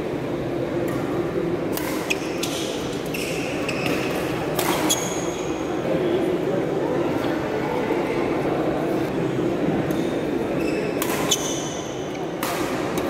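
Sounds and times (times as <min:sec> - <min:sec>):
murmur of spectators: 0:00.0 - 0:13.0
shoes squeaking on court: 0:02.0 - 0:05.6, 0:10.6 - 0:11.8
rackets striking shuttlecock: 0:11.0 - 0:11.3.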